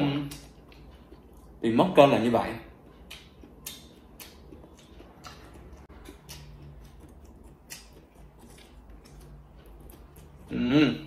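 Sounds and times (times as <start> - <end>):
chewing noodles: 2.8 - 11.0.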